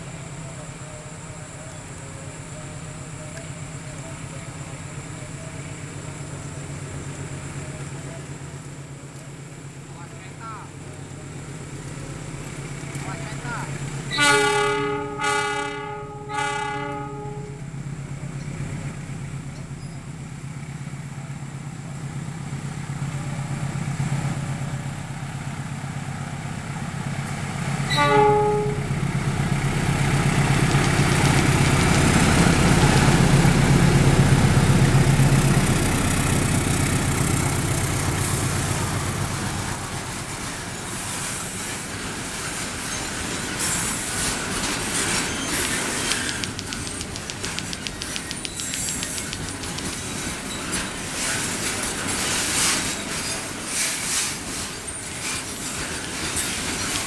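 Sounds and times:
train wheel and rail noise: 0.0s - 57.0s
locomotive horn blasts: 14.1s - 17.6s, 27.9s - 29.0s.

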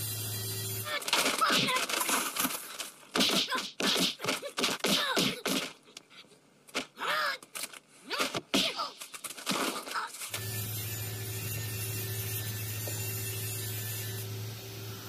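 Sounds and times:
punches whacking: 3.1s - 5.8s, 8.1s - 9.9s.

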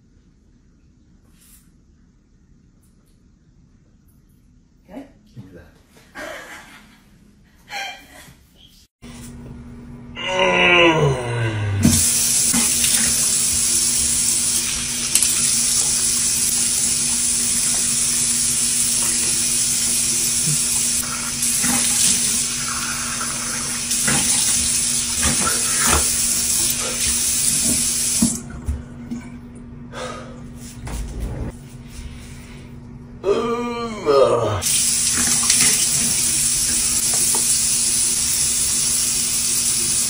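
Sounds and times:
tap running into sink: 27.0s - 28.4s, 35.0s - 37.6s
water splashing: 34.7s - 37.5s.

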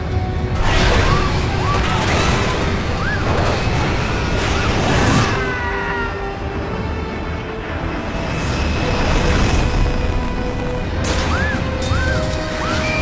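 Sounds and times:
passengers screaming: 0.6s - 6.4s, 11.1s - 13.0s.

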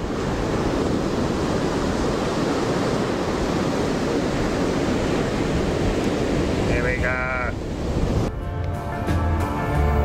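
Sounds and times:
surf breaking on beach: 0.0s - 8.3s
wind buffeting microphone: 0.0s - 8.4s.

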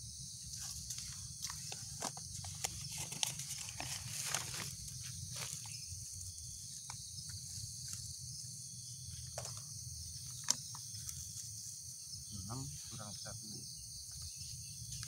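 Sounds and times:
insect chorus: 0.0s - 15.0s
rustling of paper and plastic bags: 0.6s - 5.7s.

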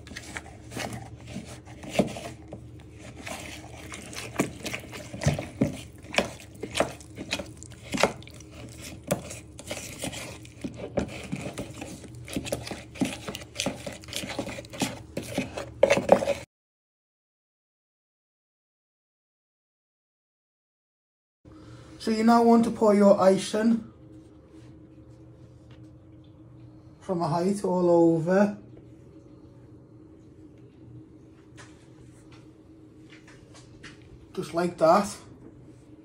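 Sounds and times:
spoon stirring in plastic bowl: 0.0s - 16.5s
spoon tapping and scraping bowl: 3.0s - 16.4s.

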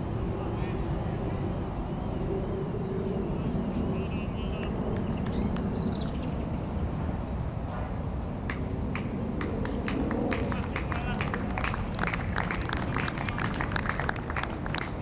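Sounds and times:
steady low rumble: 0.0s - 15.0s
birds chirping: 0.4s - 9.1s.

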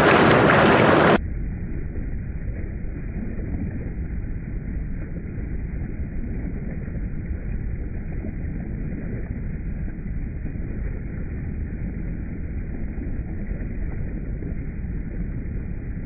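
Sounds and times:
water splashing over rocks: 0.0s - 1.2s, 2.4s - 16.0s
deep muffled water rumble: 0.0s - 16.0s.

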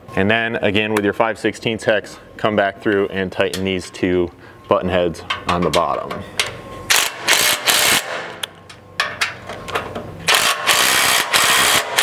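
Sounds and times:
impact driver hammering bolts: 6.4s - 9.4s, 10.3s - 12.0s.

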